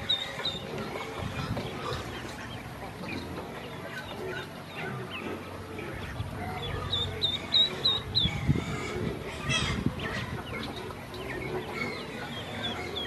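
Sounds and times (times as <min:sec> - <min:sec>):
ducklings peeping: 0:00.0 - 0:13.0.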